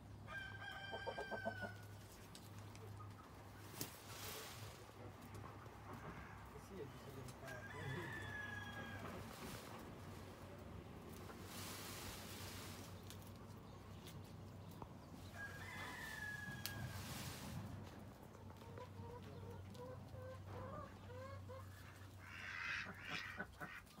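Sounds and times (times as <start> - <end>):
loud rustle: 3.6 - 5.0, 11.0 - 13.4
fowl clucking: 18.4 - 24.0.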